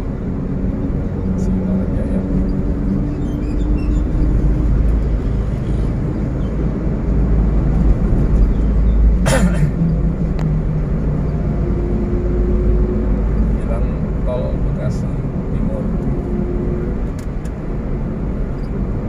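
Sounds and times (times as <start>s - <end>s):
car engine and tyres rumble: 0.0s - 19.0s.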